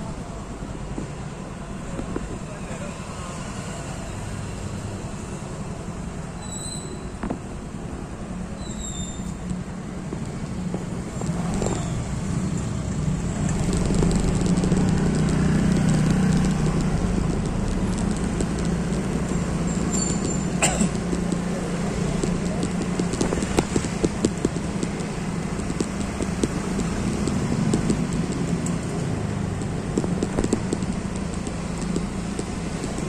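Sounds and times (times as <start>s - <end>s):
vehicle engine humming: 7.0s - 33.0s.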